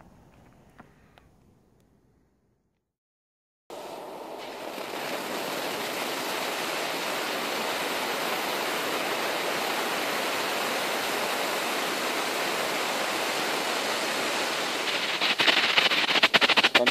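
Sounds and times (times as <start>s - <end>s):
flare burning with hiss: 3.8s - 16.9s.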